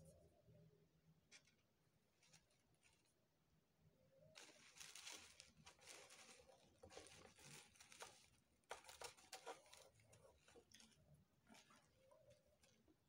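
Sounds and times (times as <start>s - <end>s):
mesh fabric rustling: 4.4s - 13.0s.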